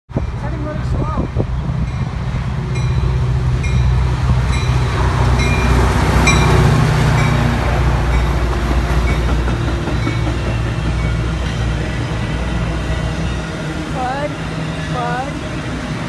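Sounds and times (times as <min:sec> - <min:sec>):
diesel locomotive engine drone: 0:00.1 - 0:16.0
train wheels clicking over rails: 0:04.2 - 0:13.2.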